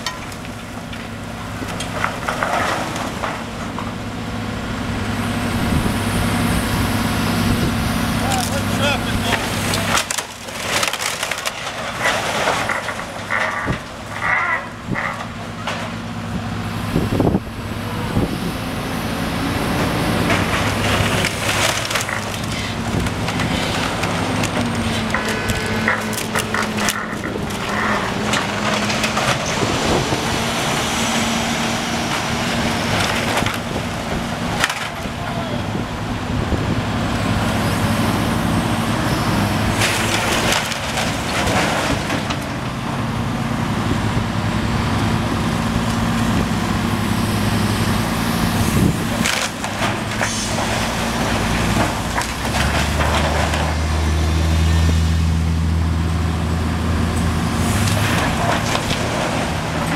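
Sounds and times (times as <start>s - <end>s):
wood splintering and debris falling: 0.0s - 4.0s, 8.2s - 16.1s, 19.6s - 35.4s, 39.4s - 43.4s, 48.6s - 55.5s, 57.0s - 59.9s
excavator diesel engine running: 0.0s - 59.9s
passing traffic hum: 0.0s - 59.9s.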